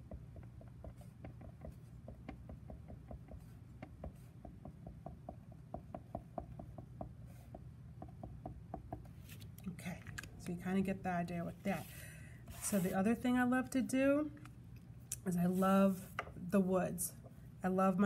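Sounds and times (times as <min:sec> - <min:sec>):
marker tapping on paper: 0:00.0 - 0:09.2
low steady hum: 0:00.0 - 0:18.0.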